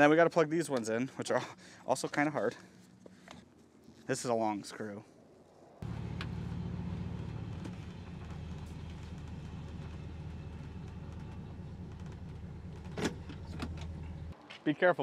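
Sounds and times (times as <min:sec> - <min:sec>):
car engine idling: 0:05.8 - 0:14.4.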